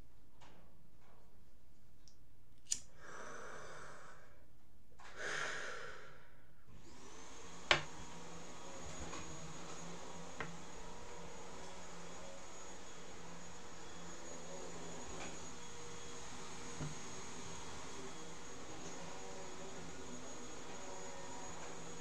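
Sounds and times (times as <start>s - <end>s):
person breathing out: 2.9s - 6.5s
faint high whine and hum: 7.5s - 22.0s.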